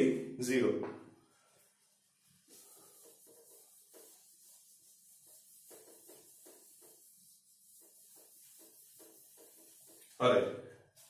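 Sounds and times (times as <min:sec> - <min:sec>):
duster rubbing on whiteboard: 0:01.6 - 0:10.2.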